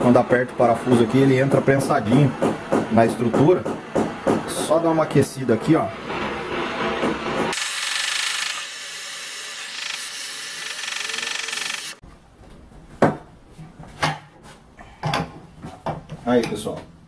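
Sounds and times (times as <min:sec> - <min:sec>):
sharp knocks: 0:02.3 - 0:04.8
gas torch hissing: 0:07.5 - 0:12.0.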